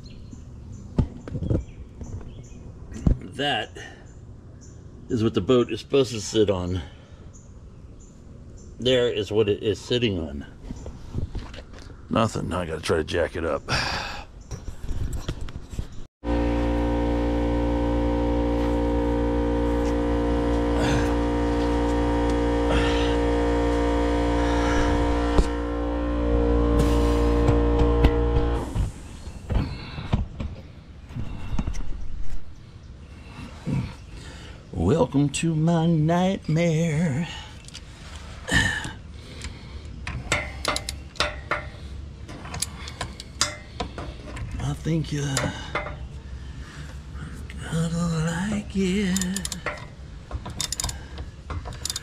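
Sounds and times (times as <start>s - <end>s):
sustained chord over low drone: 16.2s - 28.8s
sharp metal clicks: 39.4s - 41.7s, 49.0s - 52.0s
socket ratchet clicking: 49.1s - 49.8s, 50.5s - 51.0s, 51.7s - 52.0s.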